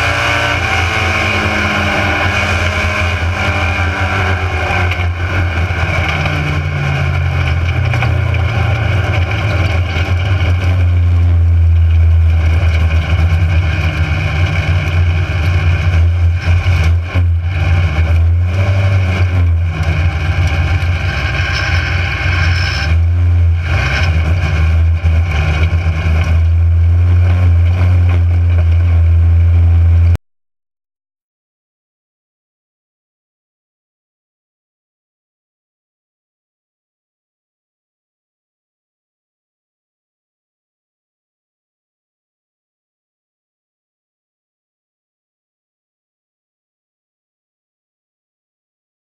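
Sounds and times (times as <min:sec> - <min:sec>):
race car engine running hard: 0:00.0 - 0:30.2.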